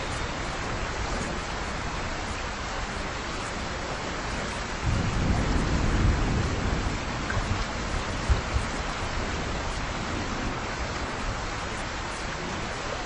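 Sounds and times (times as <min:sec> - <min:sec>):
heavy rain: 0:00.0 - 0:13.0
low rumble of thunder: 0:04.1 - 0:13.0.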